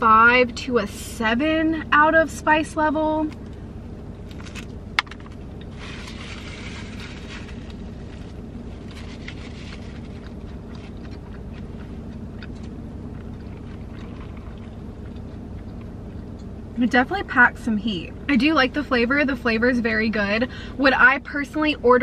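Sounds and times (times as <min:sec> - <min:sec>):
low hum in car cabin: 0:00.0 - 0:22.0
chewing: 0:08.8 - 0:16.6.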